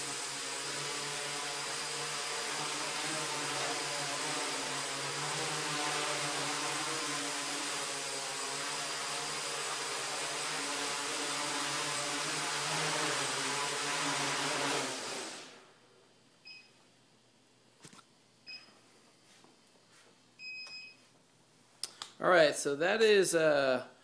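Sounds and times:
drone motors buzzing hum: 0:00.0 - 0:15.5.

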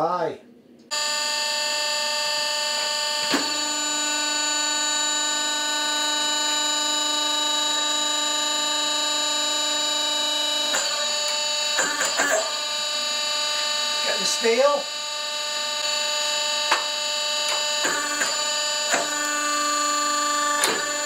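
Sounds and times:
electric motor and pump whine: 0:00.9 - 0:21.0
press clunk: 0:20.6 - 0:21.0.

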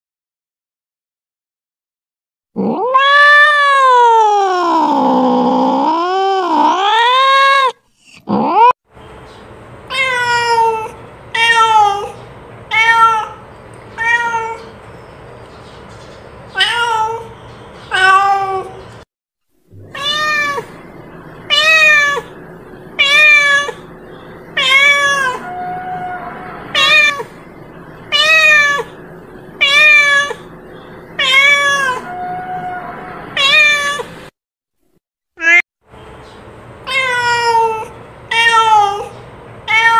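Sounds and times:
cat meowing: 0:02.6 - 0:08.7, 0:09.9 - 0:13.4, 0:14.0 - 0:14.7, 0:16.6 - 0:17.3, 0:17.9 - 0:18.8, 0:19.8 - 0:20.8, 0:21.5 - 0:22.3, 0:23.0 - 0:23.9, 0:24.6 - 0:27.4, 0:28.0 - 0:29.0, 0:29.6 - 0:30.5, 0:31.2 - 0:34.1, 0:35.4 - 0:35.6, 0:36.9 - 0:39.9.

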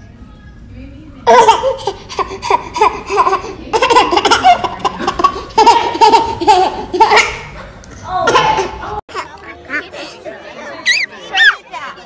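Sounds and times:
baby laughing: 0:01.3 - 0:07.6.

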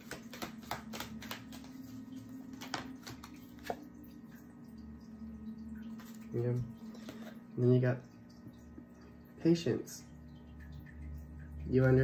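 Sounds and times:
cards clicking: 0:00.0 - 0:03.8
steady low hum: 0:00.0 - 0:12.0.

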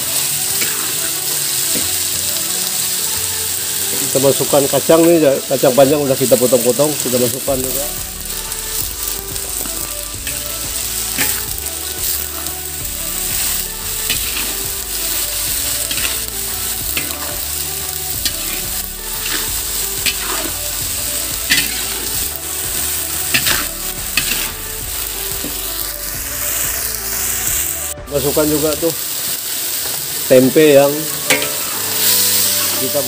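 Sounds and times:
metal spatula scraping a pan: 0:00.0 - 0:25.9, 0:28.4 - 0:33.0
vegetables sizzling in a wok: 0:00.0 - 0:33.0.

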